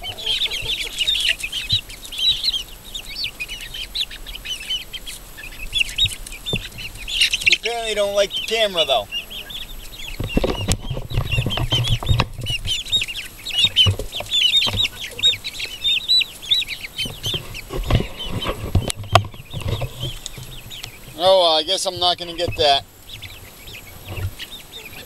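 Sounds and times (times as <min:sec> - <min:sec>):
chicks peeping: 0:00.0 - 0:25.0
wings flapping: 0:00.0 - 0:25.0
low thumps and rustling: 0:05.1 - 0:07.8, 0:09.6 - 0:24.6.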